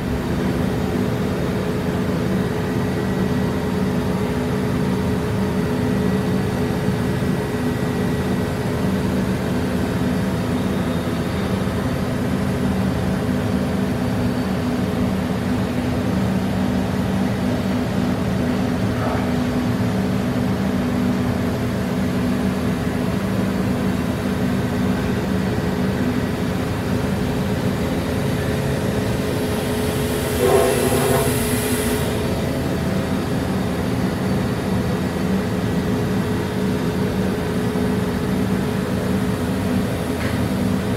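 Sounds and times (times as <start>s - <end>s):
machining center humming: 22.2s - 40.9s.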